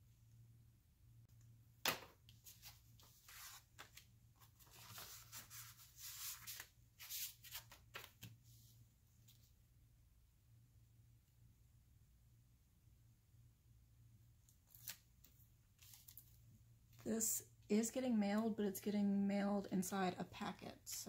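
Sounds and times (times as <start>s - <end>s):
paper and card rustling: 1.9s - 8.4s, 14.6s - 16.4s.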